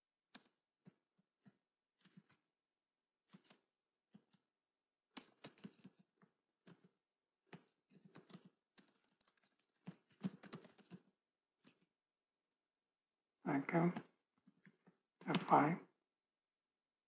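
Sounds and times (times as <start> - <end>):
computer keyboard typing: 5.2 - 6.0, 7.5 - 11.0.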